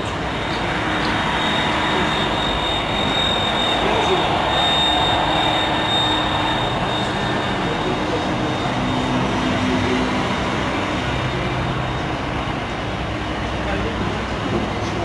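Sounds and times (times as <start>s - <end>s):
thin high whine: 0.0s - 10.1s
distant jet engines: 0.0s - 15.0s
road traffic: 0.0s - 15.0s.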